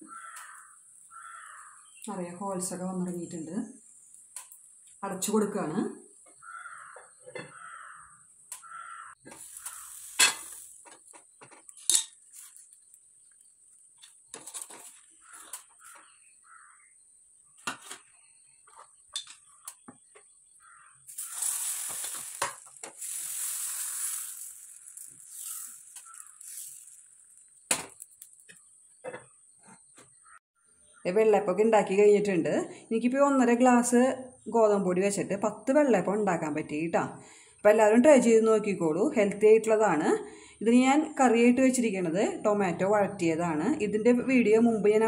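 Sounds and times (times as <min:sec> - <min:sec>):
batter sizzling in hot pan: 0:09.2 - 0:13.3, 0:21.1 - 0:28.6
pan and lid clinking: 0:09.4 - 0:10.7.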